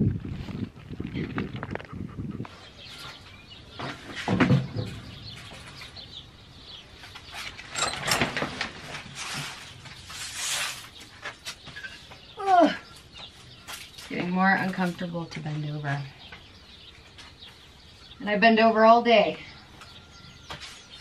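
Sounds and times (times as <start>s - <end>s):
rustling scrape: 7.2s - 12.1s.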